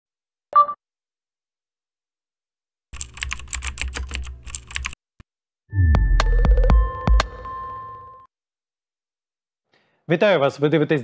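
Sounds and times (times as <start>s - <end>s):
rapid keyboard typing: 3.0s - 5.0s.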